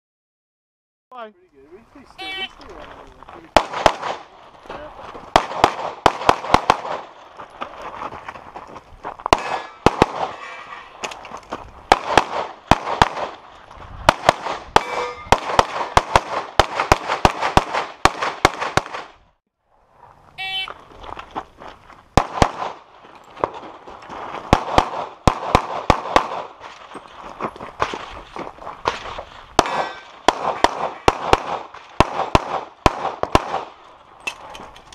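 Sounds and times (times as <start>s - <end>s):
rapid pistol shots: 3.6s - 4.3s, 5.2s - 7.2s, 9.3s - 10.4s, 11.9s - 13.4s, 14.1s - 19.2s, 22.2s - 22.8s, 24.4s - 26.6s, 28.8s - 33.8s.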